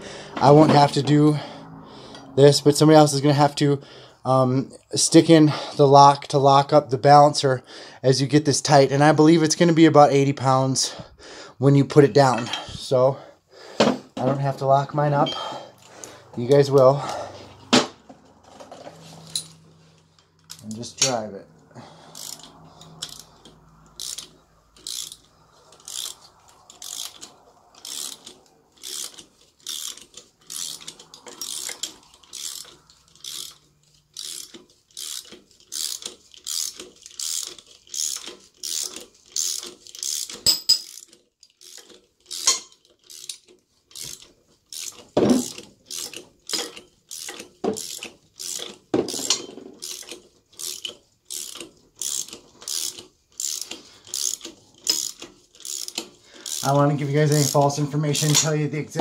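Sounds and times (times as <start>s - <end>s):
ratchet wrench clicking: 19.2s - 21.1s, 22.0s - 58.6s.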